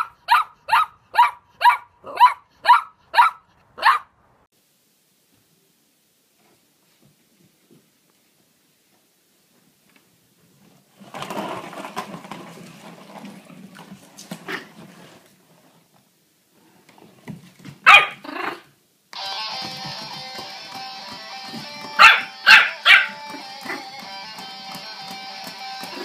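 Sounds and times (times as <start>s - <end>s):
puppy barking: 0.0s - 4.1s, 17.8s - 18.6s, 22.0s - 23.8s
music with steady tones: 19.2s - 26.0s.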